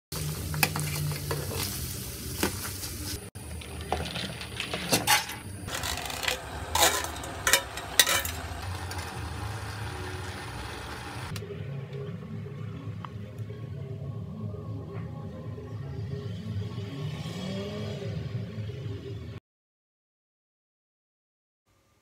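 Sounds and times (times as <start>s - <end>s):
steady sizzle: 0.1s - 3.3s, 6.4s - 11.4s.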